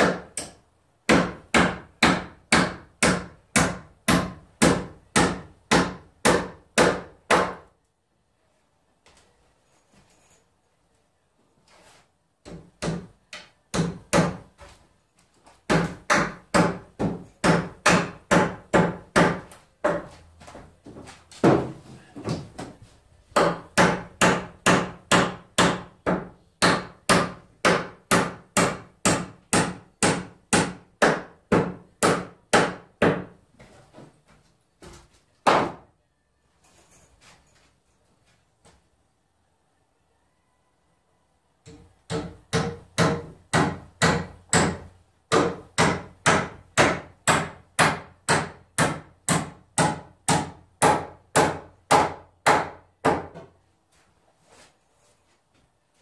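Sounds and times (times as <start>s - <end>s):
hammer driving nails into wood: 0.0s - 7.7s, 12.4s - 14.6s, 15.7s - 20.1s, 23.4s - 33.3s, 35.4s - 35.8s, 41.6s - 53.5s.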